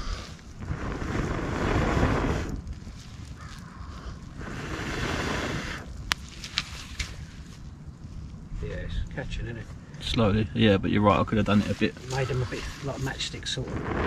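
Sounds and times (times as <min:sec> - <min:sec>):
person blowing on fire: 0:00.0 - 0:06.0, 0:11.9 - 0:14.0
fire snapping: 0:00.0 - 0:08.5, 0:09.9 - 0:14.0.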